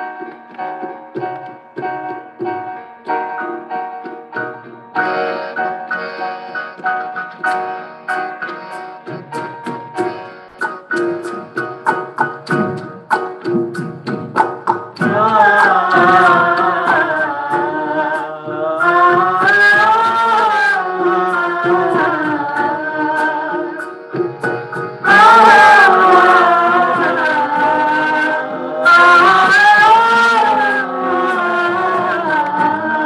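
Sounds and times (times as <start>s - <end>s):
keyboard: 0.0s - 33.0s
harmonium: 5.0s - 12.1s
tabla drumming: 9.2s - 30.7s
vocalists singing: 14.7s - 33.0s.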